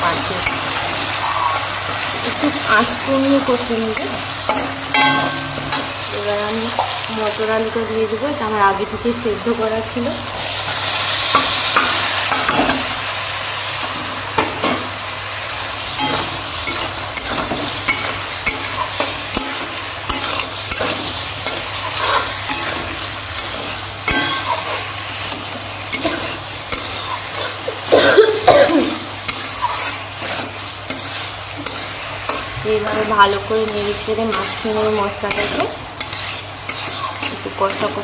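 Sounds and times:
food sizzling in hot oil: 0:00.0 - 0:38.0
spatula scraping and clicking on pan: 0:29.3 - 0:38.0.

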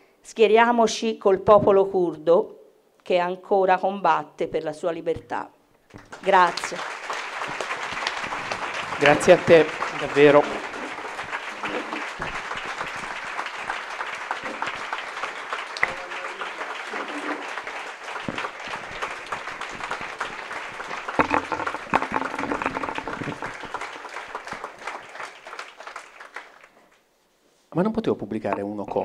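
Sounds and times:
audience applauding: 0:05.9 - 0:27.0.

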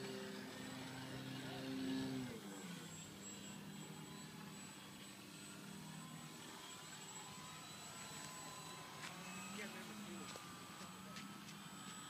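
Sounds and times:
model aircraft motor hum: 0:00.0 - 0:12.0
propeller high whine: 0:00.0 - 0:12.0.

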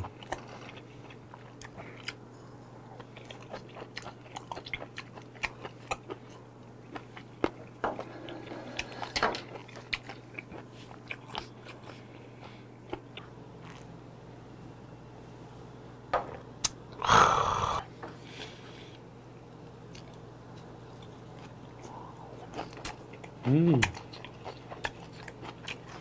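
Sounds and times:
man chewing food: 0:00.0 - 0:14.0, 0:19.8 - 0:26.0.

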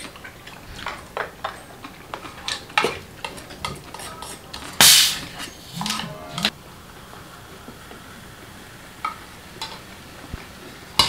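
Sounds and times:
soda bottle opening hiss: 0:04.8 - 0:05.2.

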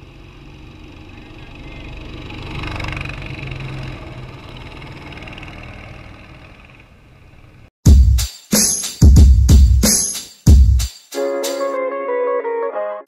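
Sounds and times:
go-kart engines passing by: 0:00.0 - 0:07.7.

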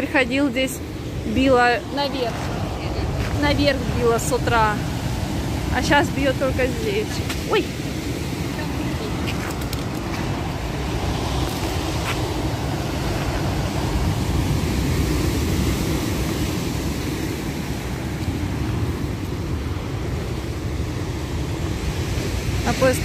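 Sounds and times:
heavy surf breaking: 0:00.0 - 0:23.0.

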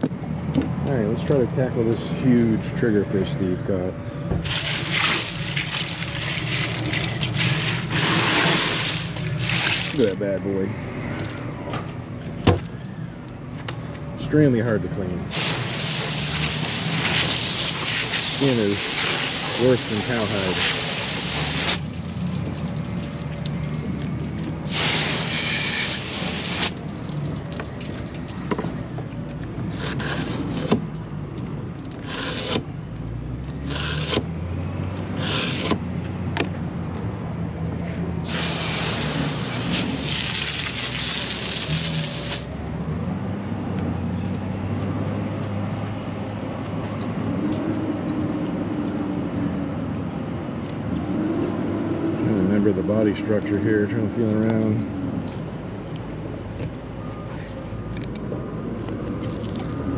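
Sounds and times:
low engine hum: 0:00.0 - 0:59.9
short scraping sounds: 0:07.4 - 0:10.0, 0:35.2 - 0:35.8
bursts of hiss: 0:15.3 - 0:21.8, 0:24.7 - 0:26.7, 0:38.2 - 0:42.4.

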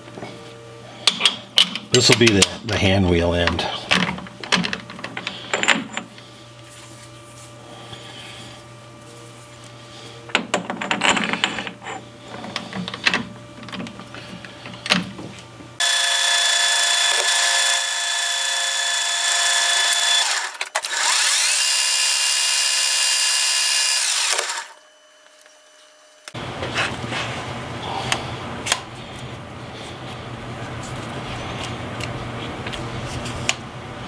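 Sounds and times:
metal parts knocking and clicking: 0:01.0 - 0:06.2, 0:10.3 - 0:15.1
lathe whining: 0:15.8 - 0:27.2.

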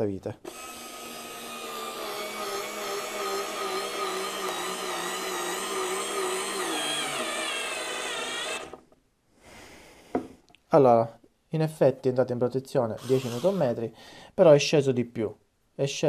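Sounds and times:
cordless screwdriver motor whining: 0:00.5 - 0:08.8, 0:13.0 - 0:13.7.

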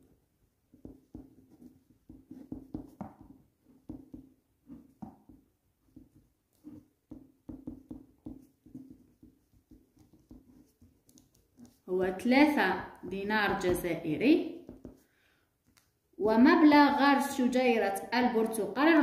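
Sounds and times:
ballpoint pen scratching paper: 0:00.7 - 0:11.8.

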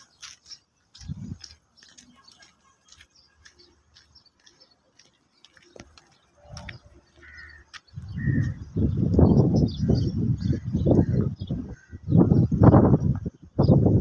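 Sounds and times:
faint bird calls: 0:01.8 - 0:08.7.

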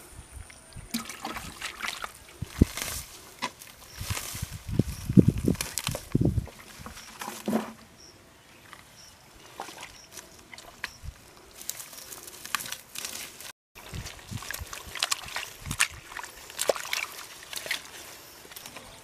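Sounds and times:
hands squelching in wet mud: 0:00.9 - 0:04.6, 0:09.4 - 0:19.0.

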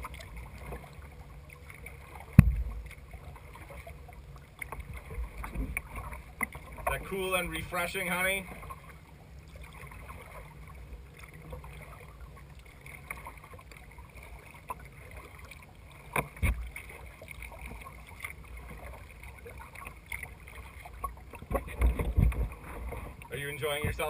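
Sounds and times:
paddle splashing water: 0:00.0 - 0:24.0
dull thumps on kayak: 0:02.3 - 0:02.8, 0:21.4 - 0:23.1.

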